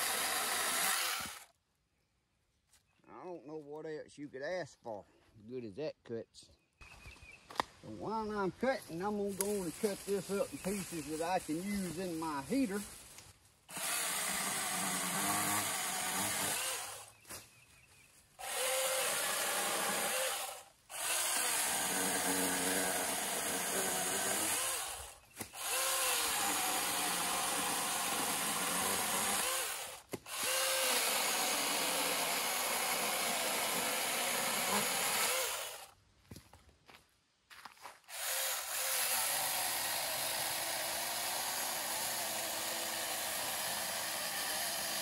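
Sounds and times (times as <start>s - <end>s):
chainsaw cutting wood: 0.0s - 1.5s, 9.2s - 13.1s, 13.7s - 17.4s, 18.4s - 36.0s, 38.1s - 45.0s.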